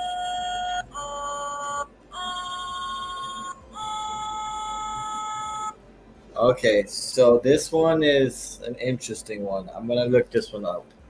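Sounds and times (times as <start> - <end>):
toy singing in electronic voice: 0.0 - 5.8.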